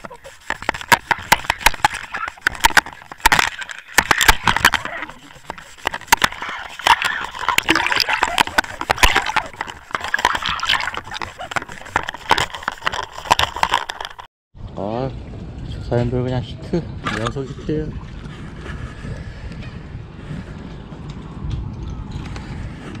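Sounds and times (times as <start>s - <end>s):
sharp irregular clicks and knocks: 0.0s - 14.3s
water sloshing and gurgling: 0.0s - 14.3s, 16.9s - 20.0s.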